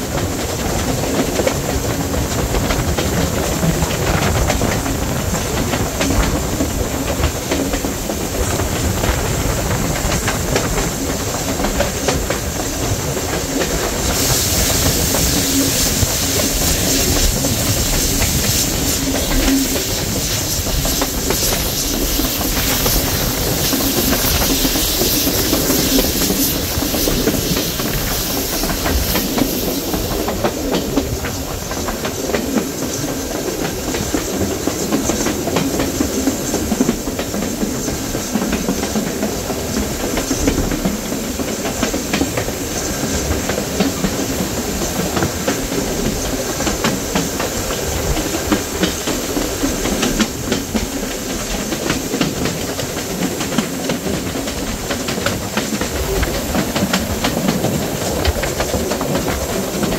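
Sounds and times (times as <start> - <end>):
steam hissing: 0.0 - 59.9
steam train rumbling: 0.0 - 59.9
wheel clatter on rails: 0.0 - 59.9.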